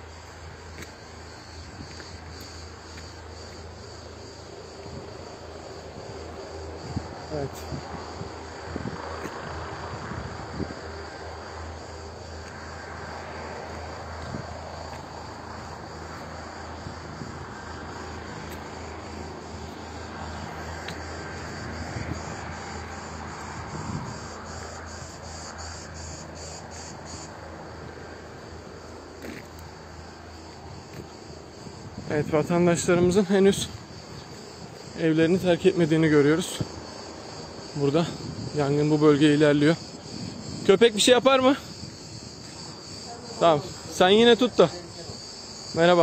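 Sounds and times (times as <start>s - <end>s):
cicadas droning: 0.0s - 46.0s.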